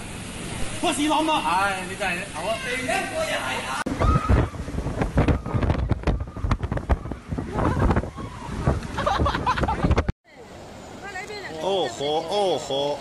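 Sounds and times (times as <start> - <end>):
wind buffeting microphone: 3.9 - 10.1.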